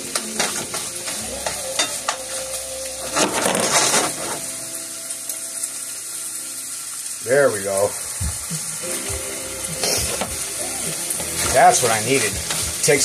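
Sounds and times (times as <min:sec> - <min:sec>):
meat sizzling in a frying pan: 0:00.0 - 0:13.0
spatula scraping a pan: 0:00.1 - 0:04.5, 0:11.2 - 0:13.0.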